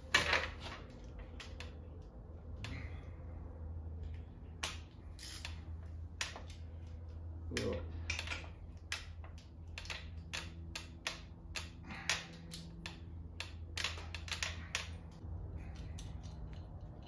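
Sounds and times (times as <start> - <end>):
steady low hum: 0.0 - 17.0
ratchet wrench clicking: 4.6 - 5.6, 8.1 - 16.9.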